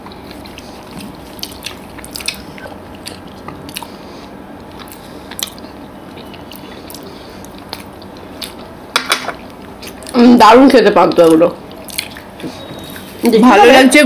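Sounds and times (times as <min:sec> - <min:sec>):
chewing mouth clicks and smacks: 0:00.1 - 0:04.0, 0:11.1 - 0:12.3.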